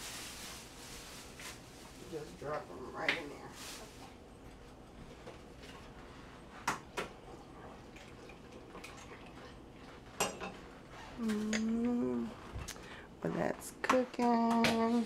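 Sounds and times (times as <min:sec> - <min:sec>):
person humming: 0:11.2 - 0:12.4.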